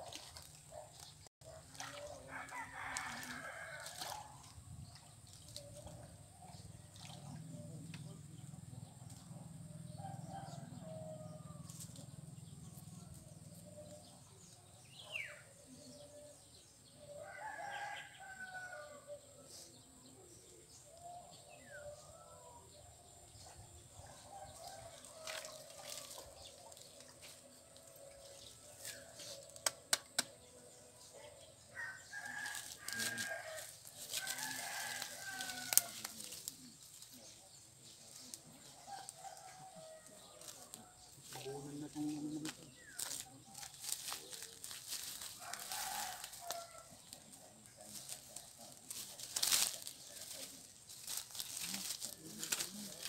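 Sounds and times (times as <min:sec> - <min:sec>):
rooster crowing: 0:02.3 - 0:04.0, 0:31.8 - 0:36.1, 0:45.4 - 0:46.9.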